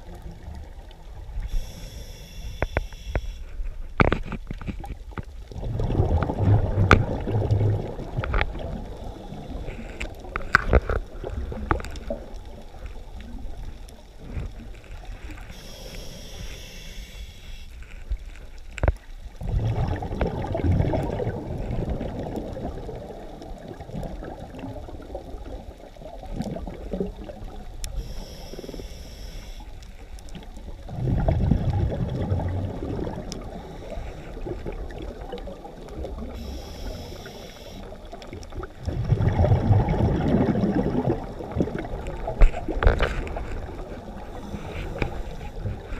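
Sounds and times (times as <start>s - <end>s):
regulator inhale hiss: 1.4s - 3.6s, 15.3s - 18.1s, 27.9s - 30.1s, 33.5s - 34.4s, 36.3s - 38.0s, 44.2s - 45.9s
exhaled bubbles gurgling: 4.8s - 17.4s, 19.2s - 45.9s.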